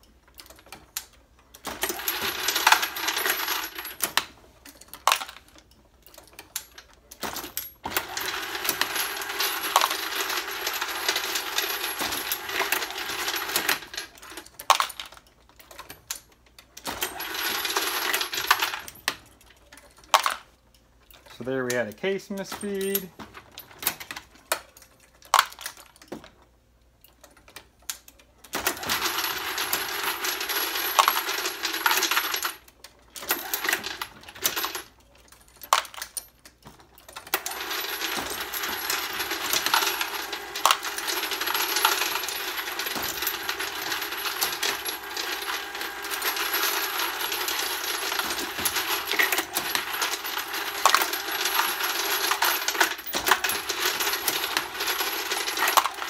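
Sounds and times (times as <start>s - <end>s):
brass cases clattering in hopper: 1.6s - 5.5s, 6.3s - 16.1s, 16.8s - 19.3s, 22.3s - 24.4s, 28.6s - 56.0s.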